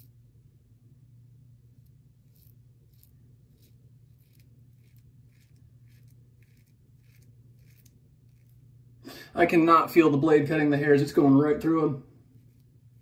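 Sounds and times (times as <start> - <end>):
steady low hum: 0.0 - 13.0
razor scraping stubble: 1.8 - 8.8, 11.7 - 13.0.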